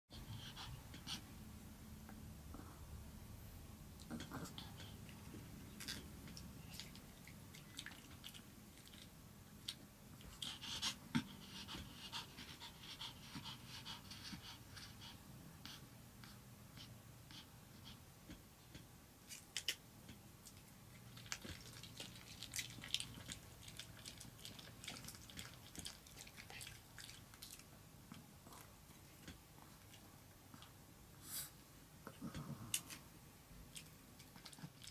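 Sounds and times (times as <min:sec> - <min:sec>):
dog panting: 0:00.1 - 0:01.4, 0:10.2 - 0:18.9.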